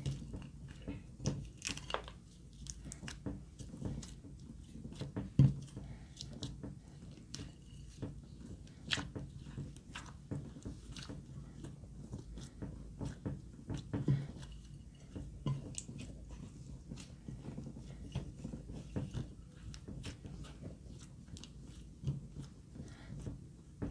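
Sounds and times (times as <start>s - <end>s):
slime squelching: 0.0s - 23.9s.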